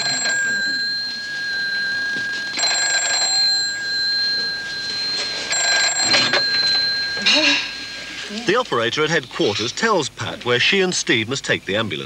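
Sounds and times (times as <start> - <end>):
telephone alarm tone ringing: 0.0 - 8.3.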